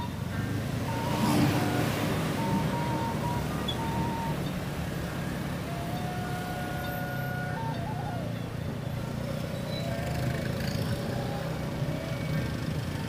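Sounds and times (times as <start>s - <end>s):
faint wavering high tone: 0.8s - 8.5s.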